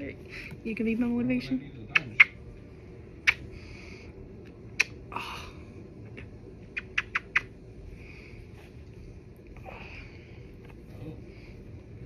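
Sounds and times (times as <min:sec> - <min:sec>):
wet lip smacks of kisses: 0:03.2 - 0:03.4, 0:04.8 - 0:05.0, 0:06.7 - 0:07.5.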